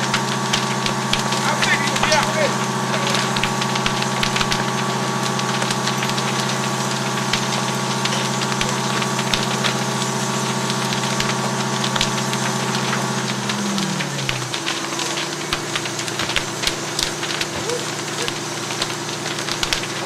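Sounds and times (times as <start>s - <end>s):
fire crackling and popping: 0.0s - 20.0s
fire engine motor running: 0.0s - 20.0s.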